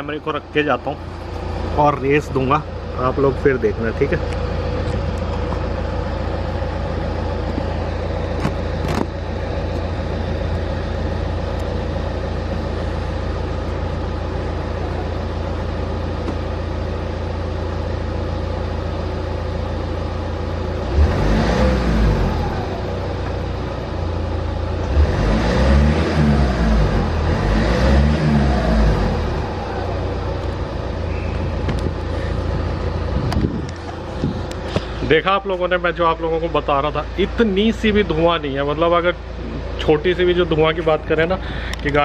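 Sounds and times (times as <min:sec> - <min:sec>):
diesel engine idling: 0:00.0 - 0:42.0
engine revving: 0:20.7 - 0:23.7, 0:24.7 - 0:35.0.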